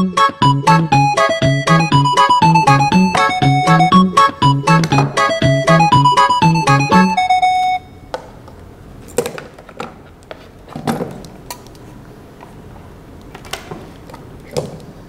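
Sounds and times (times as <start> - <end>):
short musical jingle: 1.2 - 7.8.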